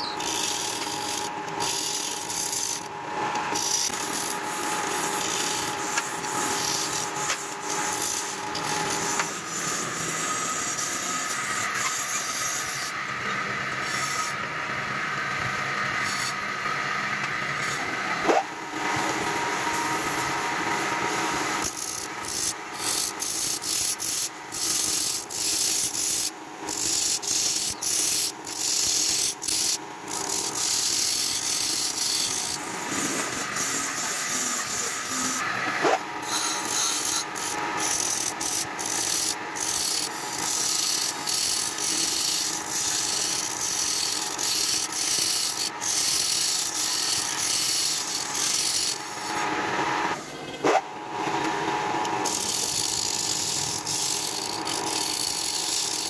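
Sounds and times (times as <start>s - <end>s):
chisel rasping wood on lathe: 0.2s - 2.9s, 3.5s - 12.9s, 21.0s - 49.5s, 52.2s - 56.0s.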